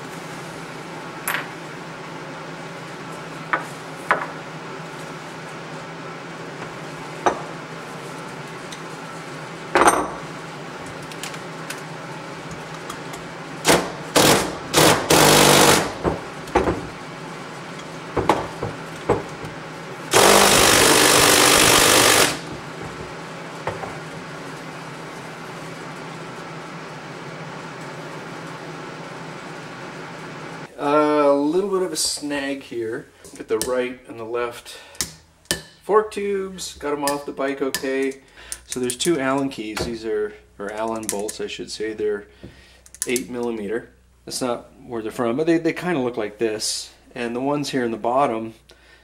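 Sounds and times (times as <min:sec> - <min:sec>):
impact driver bursts: 0:13.6 - 0:16.1, 0:20.1 - 0:22.6.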